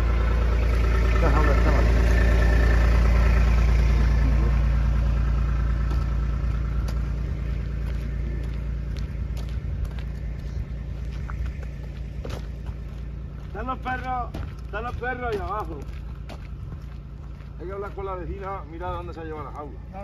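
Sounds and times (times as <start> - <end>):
vehicle engine idling: 0.0 - 20.0
footsteps on dry ground: 5.0 - 20.0.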